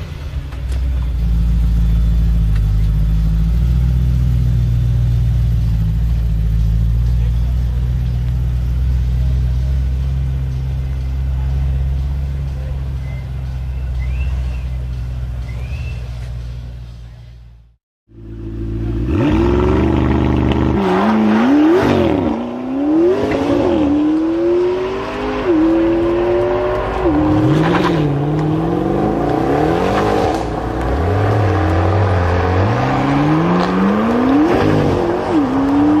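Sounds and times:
sports car engine revving: 1.1s - 16.6s, 18.1s - 36.0s.

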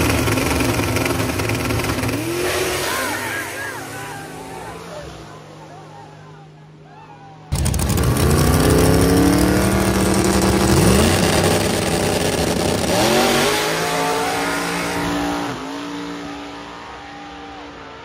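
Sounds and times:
drag car engines revving: 0.0s - 18.0s.

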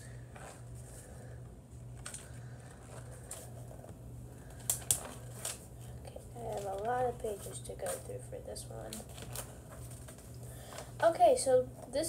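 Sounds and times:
steady low hum: 0.0s - 12.0s
magazine pages rustling: 1.9s - 11.0s.

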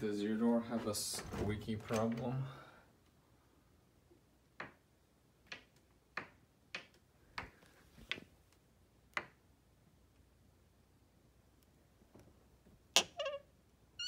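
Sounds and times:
door hinge squeaking: 13.0s - 13.5s.

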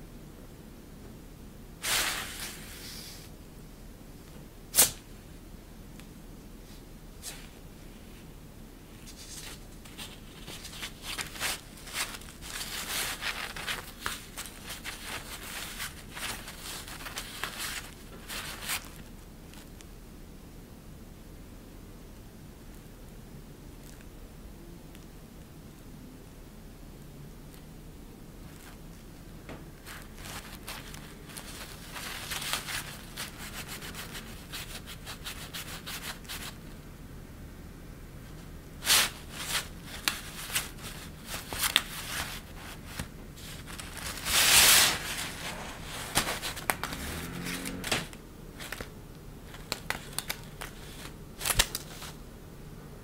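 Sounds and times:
fabric rustling and crinkling: 9.0s - 19.7s, 28.4s - 36.6s, 38.8s - 52.2s.

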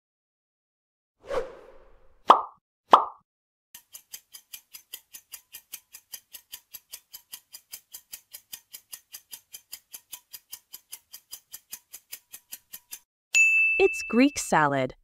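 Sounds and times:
fast clock ticks: 3.8s - 13.1s.

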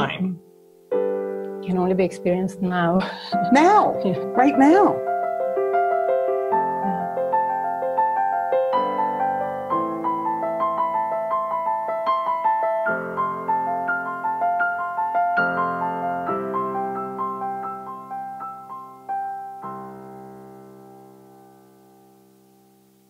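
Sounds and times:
piano music: 0.0s - 23.0s.

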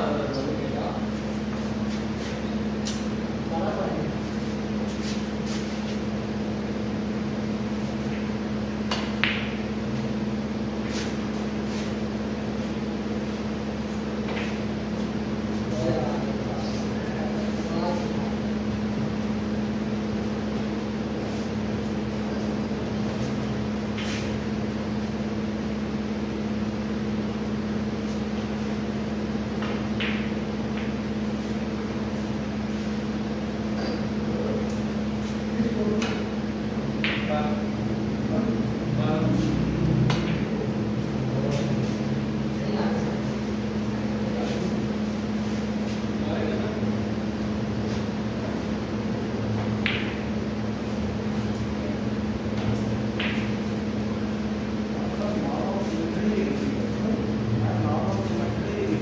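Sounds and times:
mechanical room hum: 0.0s - 59.0s
cue tip tapping ball: 8.1s - 9.8s, 29.6s - 31.2s, 37.0s - 37.3s, 49.6s - 50.4s, 52.6s - 53.7s
snooker balls clacking: 8.2s - 9.8s, 29.6s - 31.1s, 37.0s - 37.4s, 49.6s - 50.4s, 52.6s - 53.9s.

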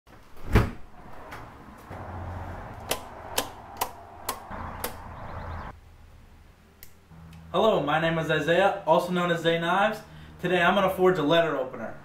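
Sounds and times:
low hum: 0.9s - 7.5s
circuit breakers clicking: 2.8s - 5.2s.

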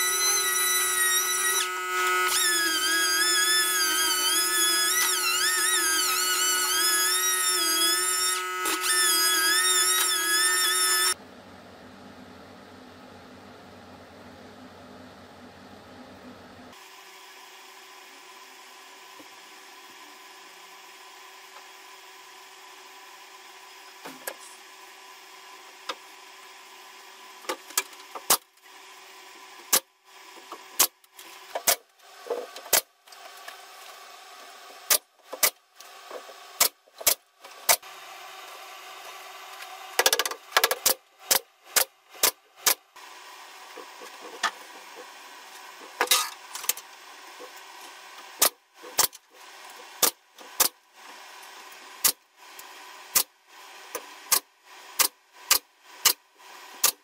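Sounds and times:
pneumatic nailer firing: 0.1s - 11.2s, 30.8s - 31.0s, 32.6s - 32.9s, 34.9s - 35.6s, 36.6s - 37.9s, 40.0s - 42.8s, 48.4s - 49.2s, 50.0s - 50.8s, 53.1s - 53.3s, 54.3s - 56.2s, 56.8s - 57.0s.

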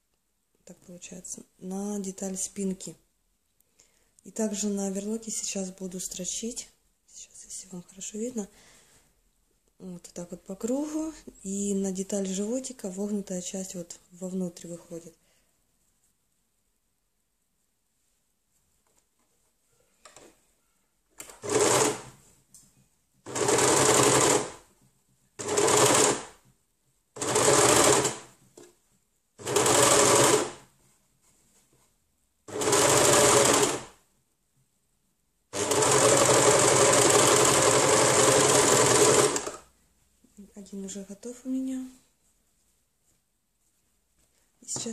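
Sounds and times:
overlocker stitching: 21.2s - 22.2s, 23.2s - 24.7s, 25.4s - 26.4s, 27.2s - 28.4s, 29.4s - 30.7s, 32.5s - 34.0s, 35.5s - 39.7s.

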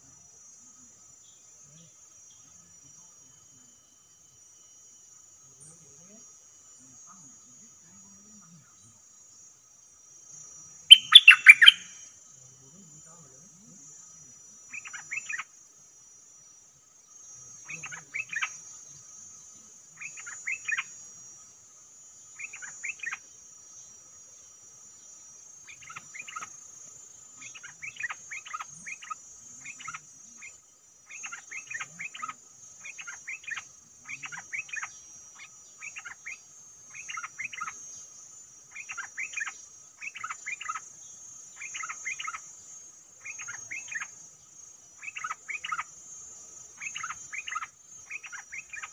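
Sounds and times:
songbird chirping: 10.9s - 12.0s, 17.0s - 48.9s.

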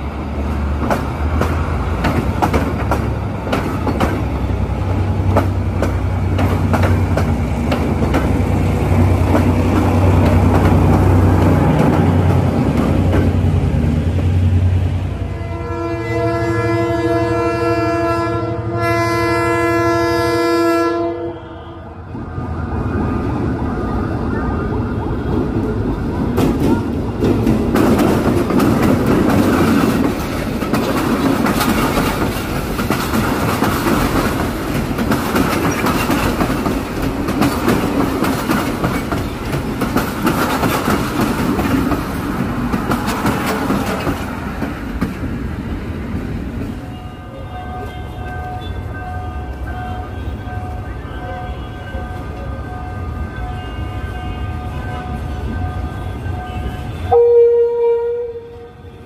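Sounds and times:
train wheels clicking over rail joints: 0.4s - 13.6s, 25.9s - 45.4s
train horn blast: 15.2s - 22.0s, 46.9s - 59.0s.

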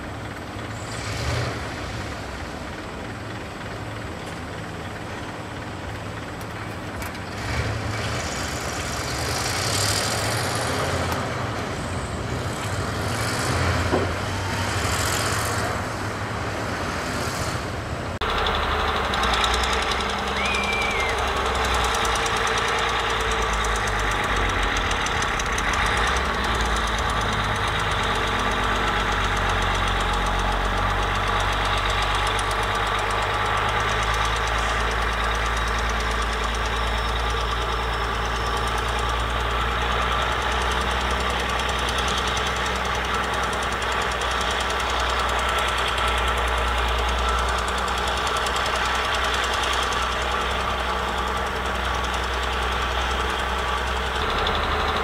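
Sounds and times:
bulldozer diesel engine: 0.0s - 55.0s.

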